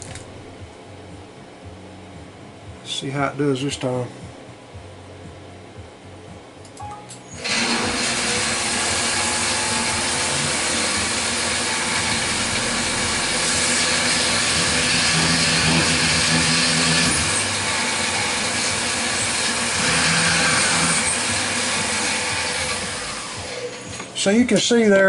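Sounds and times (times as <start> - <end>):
milling machine spindle running: 7.4 - 24.1.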